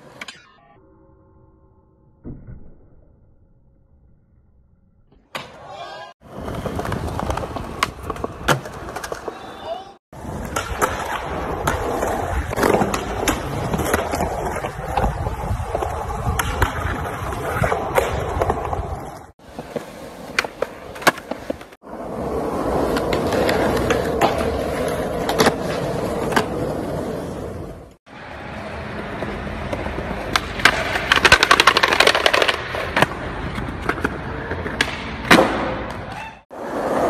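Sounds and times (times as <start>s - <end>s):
skateboard wheels rolling on concrete: 0.0s - 0.4s, 5.2s - 37.0s
skateboard clacking: 6.3s - 21.7s, 28.5s - 36.7s.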